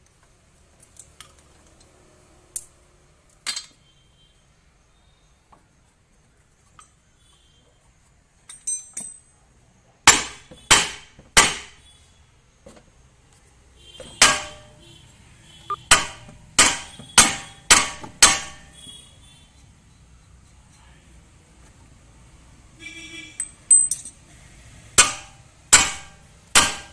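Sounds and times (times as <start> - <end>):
light metal clinks: 2.6 - 3.8, 8.4 - 9.4, 23.4 - 24.2
hammer striking steel: 10.1 - 11.8, 14.0 - 14.8, 15.8 - 18.7, 25.0 - 26.9.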